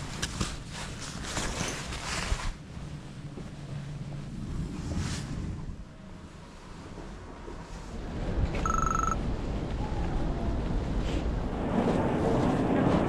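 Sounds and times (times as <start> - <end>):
fabric and camera handling rustle: 0.0 - 2.7
low steady hum: 0.0 - 10.5.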